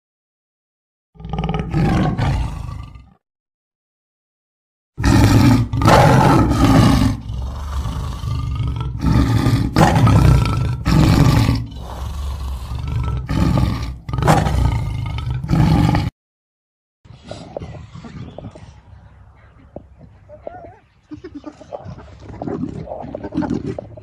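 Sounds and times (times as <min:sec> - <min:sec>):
big cat roaring and growling: 0:01.2 - 0:03.2, 0:05.0 - 0:16.1.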